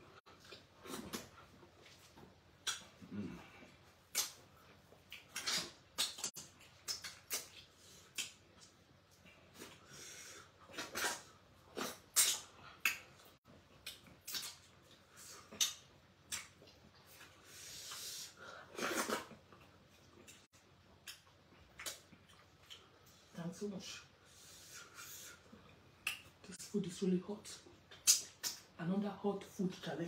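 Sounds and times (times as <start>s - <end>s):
wet lip-smacking and slurping: 5.0s - 8.8s.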